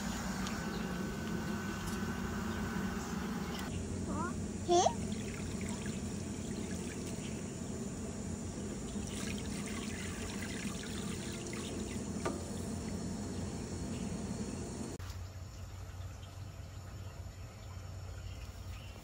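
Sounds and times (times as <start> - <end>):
hose water into metal bowl: 4.7 - 7.6, 8.2 - 13.3.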